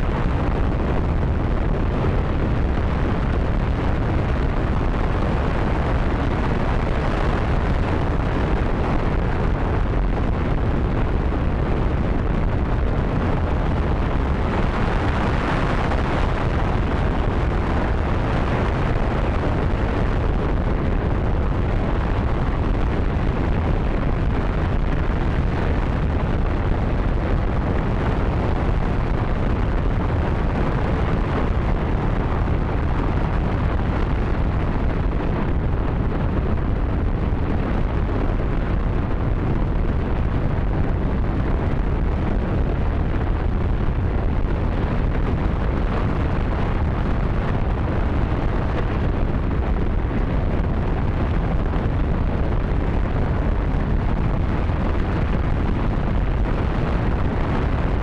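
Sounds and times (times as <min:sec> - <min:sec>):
rocket engine roaring: 0:00.0 - 0:58.0.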